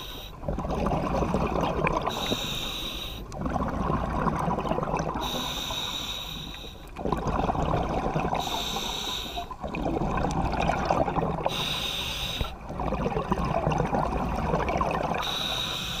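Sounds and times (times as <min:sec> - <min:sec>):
exhaled bubbles rushing: 0:00.4 - 0:02.3, 0:03.3 - 0:05.4, 0:07.0 - 0:08.6, 0:09.4 - 0:11.7, 0:12.4 - 0:15.4
hissing regulator inhale: 0:02.1 - 0:03.3, 0:05.2 - 0:06.9, 0:08.4 - 0:09.6, 0:11.4 - 0:12.6, 0:15.2 - 0:16.0.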